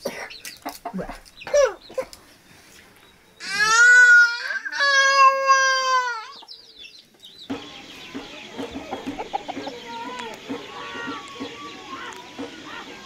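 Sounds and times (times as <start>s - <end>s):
chickens clucking: 0.0s - 3.1s, 5.0s - 13.0s
small birds chirping: 0.0s - 13.0s.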